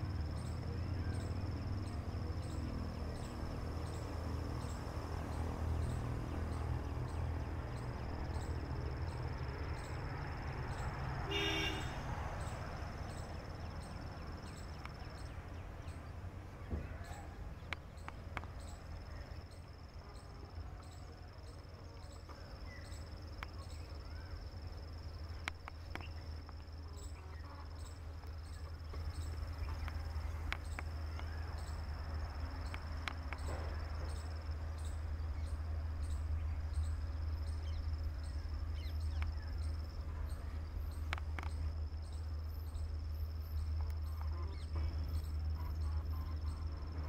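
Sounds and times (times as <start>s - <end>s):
insects chirping: 0.0s - 47.0s
faint clicks: 17.6s - 18.7s, 25.3s - 26.7s, 28.2s - 31.4s, 32.6s - 33.7s, 38.8s - 39.7s, 40.8s - 41.7s.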